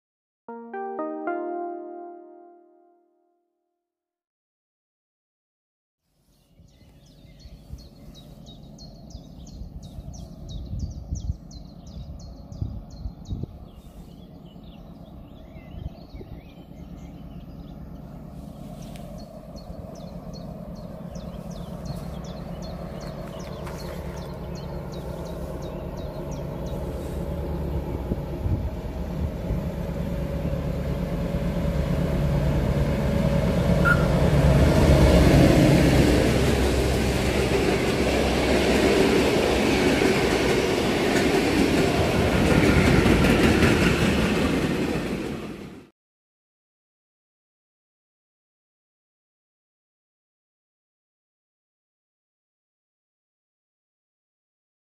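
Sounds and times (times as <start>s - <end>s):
small birds chirping: 6.2s - 27.2s
diesel locomotive engine drone: 6.3s - 45.9s.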